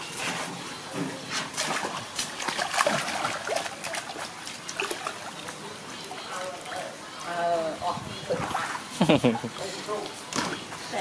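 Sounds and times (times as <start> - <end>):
water splashing in a tank: 1.3 - 8.9.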